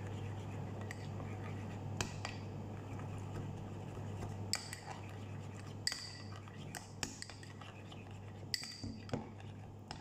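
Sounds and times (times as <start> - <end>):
spoon stirring thick sauce: 2.8 - 10.0.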